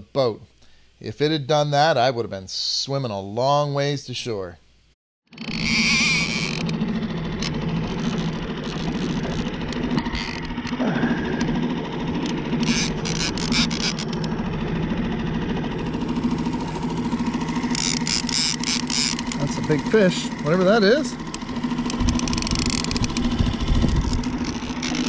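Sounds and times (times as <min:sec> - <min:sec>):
outboard motor running: 0:05.2 - 0:25.0
fishing reel clicking: 0:05.3 - 0:06.8, 0:07.4 - 0:10.5, 0:12.2 - 0:14.4, 0:17.6 - 0:19.5, 0:20.6 - 0:25.0.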